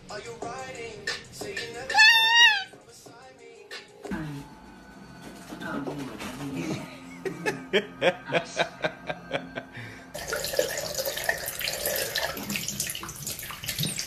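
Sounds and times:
short pitched cries: 1.9s - 2.8s
tap running water into sink: 10.2s - 14.0s.

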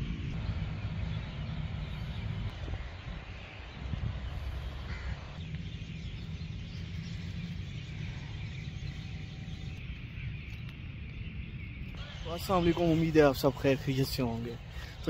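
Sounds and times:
crow cawing: 4.8s - 5.4s.

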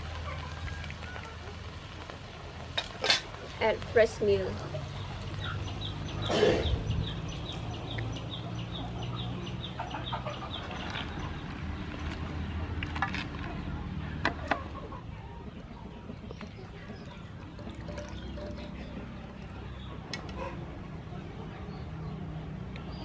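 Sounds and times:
bird chirping rapidly: 4.8s - 11.5s.

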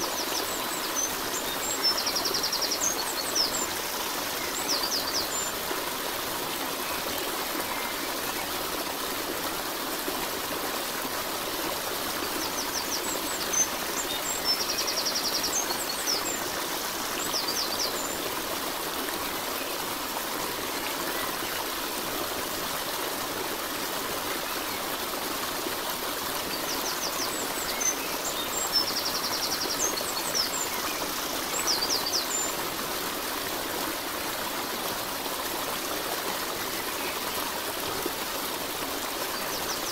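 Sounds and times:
bird song: 0.0s - 5.7s, 12.2s - 18.4s, 26.4s - 32.7s
stream water rushing: 0.0s - 39.9s.

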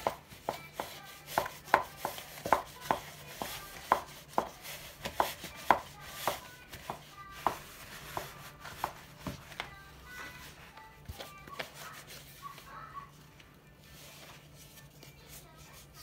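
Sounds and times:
wooden spatula knocking on bowl: 0.0s - 9.4s.

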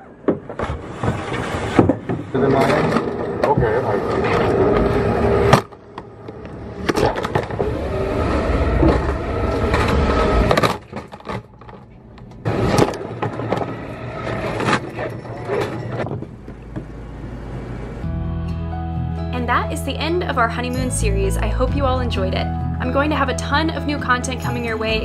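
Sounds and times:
tray rumbling over rollers: 0.4s - 16.9s
knocks and clatters: 8.8s - 16.9s.

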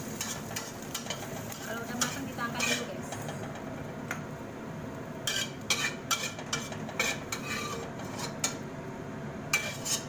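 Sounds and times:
metal spatula scraping a wok: 0.0s - 3.4s, 5.2s - 8.6s, 9.5s - 10.0s.

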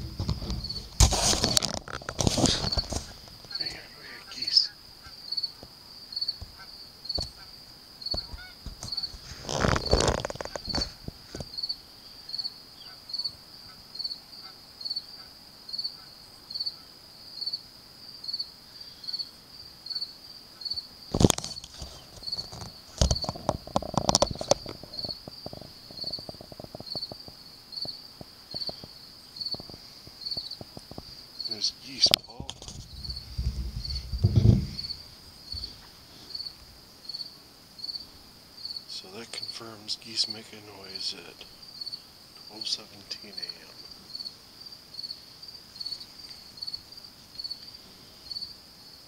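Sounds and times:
cricket chirping: 0.0s - 49.0s
geese honking: 8.2s - 9.2s.

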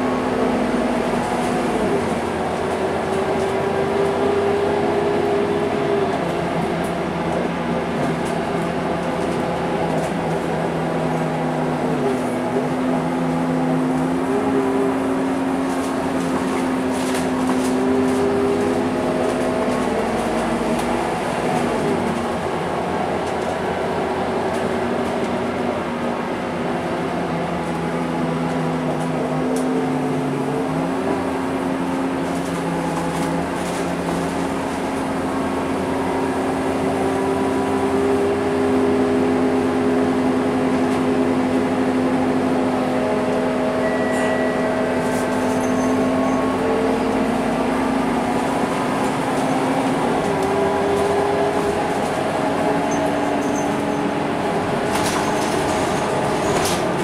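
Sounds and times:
bus engine drone with whine: 0.0s - 57.0s.

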